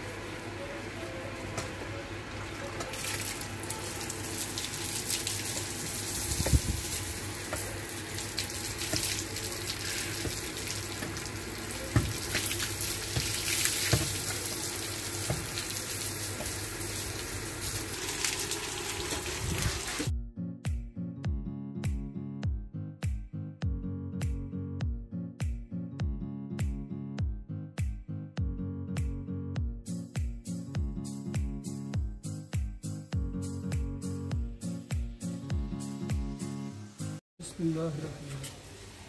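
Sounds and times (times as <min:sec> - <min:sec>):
water running onto brick floor: 0:02.5 - 0:20.1, 0:37.6 - 0:39.0
hose water splashing: 0:02.8 - 0:20.1.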